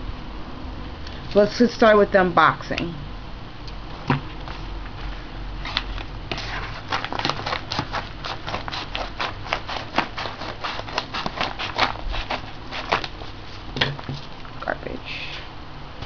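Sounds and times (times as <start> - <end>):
paper crinkling: 5.6 - 14.4
scissors snipping paper: 5.7 - 13.2.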